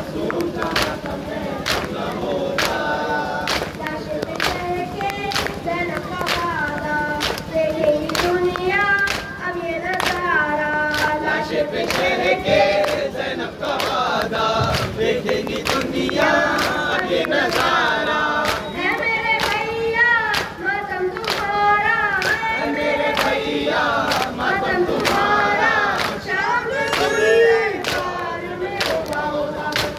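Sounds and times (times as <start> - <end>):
men chanting in unison: 0.0 - 3.8, 11.0 - 18.8, 22.4 - 29.9.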